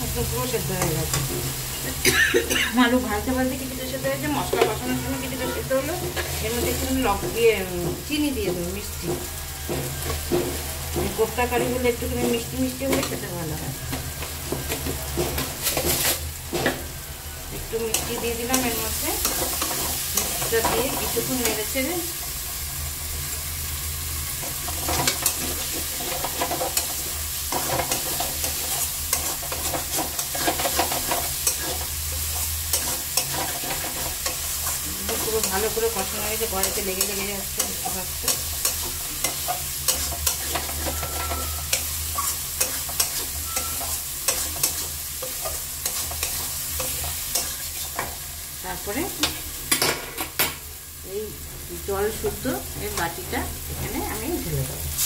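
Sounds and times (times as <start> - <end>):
potatoes sizzling in oil: 0.0 - 55.0
metal spatula scraping pan: 24.5 - 48.2.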